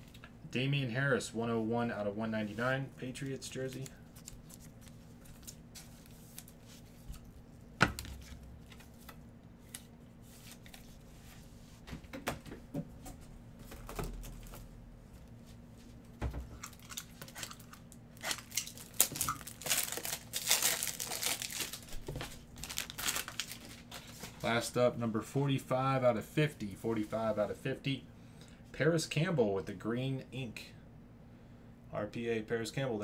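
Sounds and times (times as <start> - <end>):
packaging crinkling and tearing: 16.6 - 24.2.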